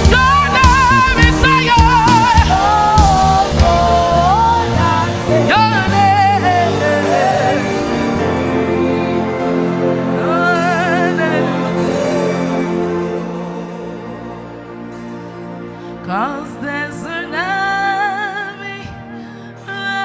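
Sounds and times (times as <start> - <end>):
women singing gospel: 0.0 - 14.4
band playing: 0.0 - 20.0.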